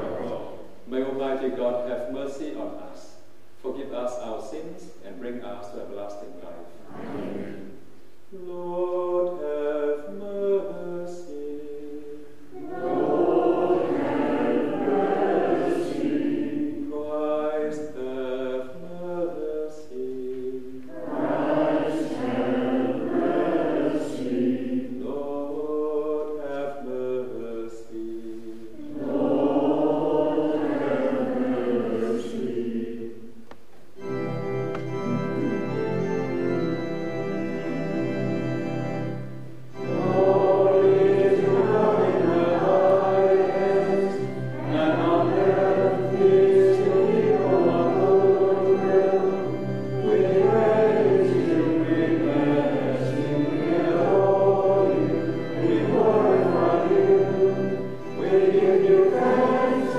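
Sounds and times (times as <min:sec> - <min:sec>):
group singing: 0:00.0 - 0:00.6, 0:06.8 - 0:07.7, 0:08.4 - 0:33.4, 0:39.8 - 0:59.9
organ playing: 0:00.0 - 0:02.9, 0:03.8 - 0:59.9
solo lead singing: 0:06.8 - 0:33.5, 0:39.1 - 0:59.9.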